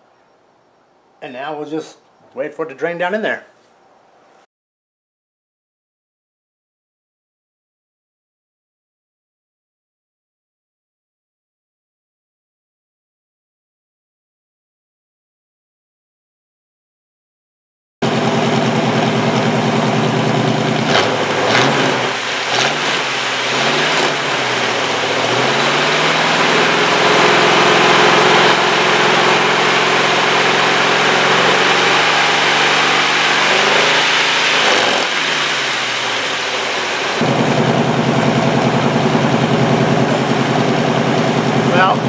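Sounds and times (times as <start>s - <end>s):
car engine revving: 18.0s - 42.0s.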